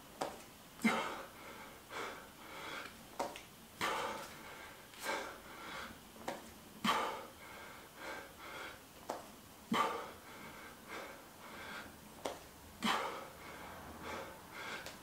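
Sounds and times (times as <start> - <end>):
man breathing hard: 0.8 - 3.0, 3.8 - 6.0, 6.8 - 8.9, 9.7 - 15.0.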